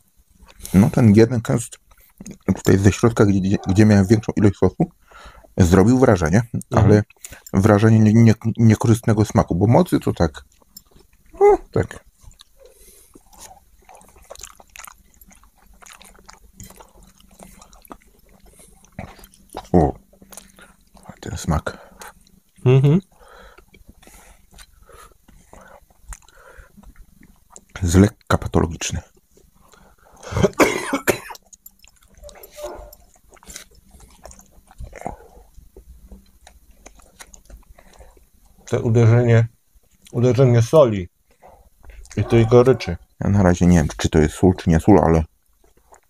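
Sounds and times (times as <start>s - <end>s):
burger being chewed: 10.0s - 39.0s, 45.3s - 46.0s
person coughing: 30.3s - 31.4s.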